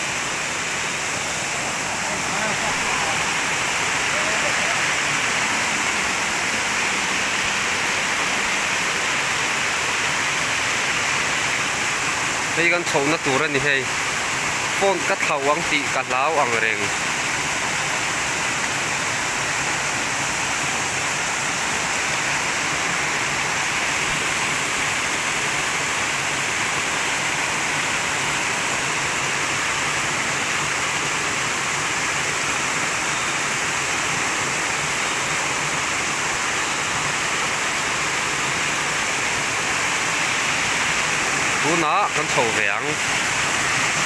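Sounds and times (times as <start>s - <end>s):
water rushing over rocks: 0.0s - 44.0s.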